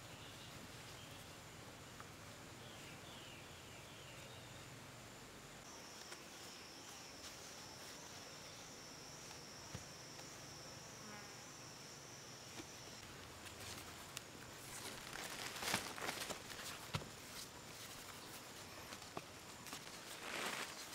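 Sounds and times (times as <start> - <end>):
high-pitched insect call: 5.6 - 20.9
stakes rustling: 12.5 - 20.9.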